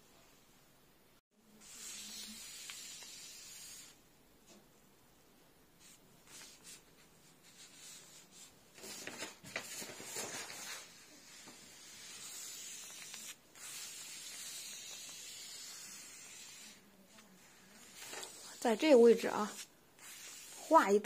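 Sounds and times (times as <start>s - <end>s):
hand sliding over paper: 7.4s - 18.6s.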